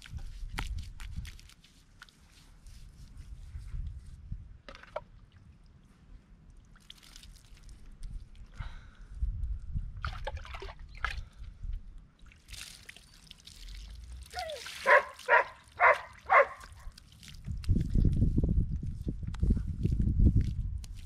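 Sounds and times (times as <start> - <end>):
water pouring and splashing: 0.0 - 3.1, 6.5 - 8.5, 10.0 - 11.3, 12.2 - 18.4
dog barking: 14.4 - 16.8.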